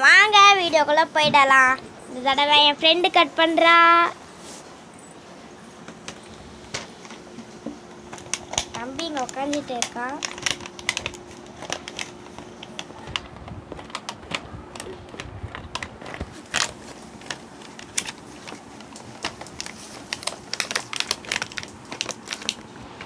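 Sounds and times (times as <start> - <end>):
plastic crinkling: 5.8 - 23.0
scissors snipping plastic: 8.1 - 22.7.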